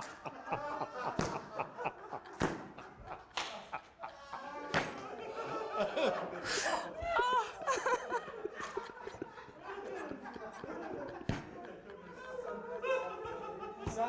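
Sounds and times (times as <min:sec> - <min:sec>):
man laughing hard: 0:00.0 - 0:04.7.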